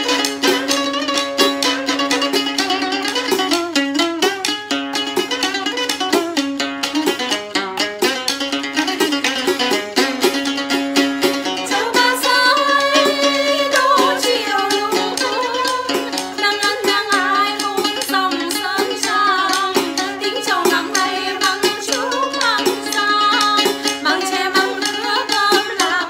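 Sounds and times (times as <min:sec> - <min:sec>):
wavering melody: 0:00.0 - 0:04.3, 0:11.3 - 0:24.8
sharp percussive rattles: 0:00.0 - 0:25.8
plucked strings: 0:00.0 - 0:26.0.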